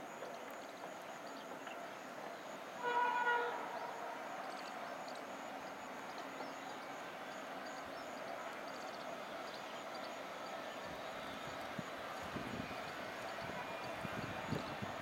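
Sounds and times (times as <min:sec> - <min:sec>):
outdoor background noise: 0:00.0 - 0:15.0
distant locomotive horn blast: 0:02.8 - 0:04.2, 0:12.2 - 0:14.8.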